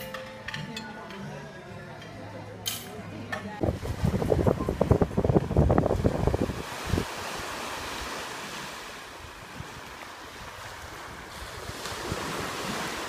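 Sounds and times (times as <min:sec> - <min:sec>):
wind rumbling on microphone: 0:03.6 - 0:13.0
waves washing up a beach: 0:03.8 - 0:13.0.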